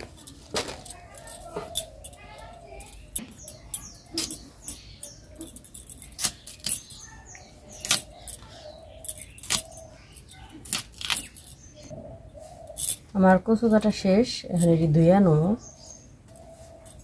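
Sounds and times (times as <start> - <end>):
blade cutting taro: 10.6 - 11.3.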